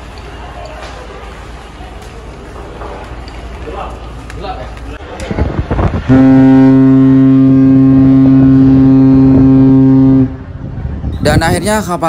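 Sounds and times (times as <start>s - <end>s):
ship horn long blast: 6.0s - 10.8s.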